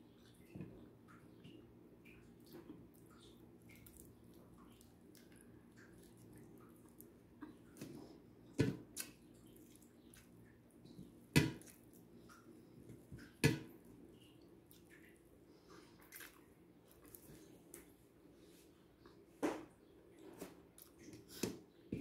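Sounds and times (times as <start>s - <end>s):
person chewing food: 2.2s - 18.0s.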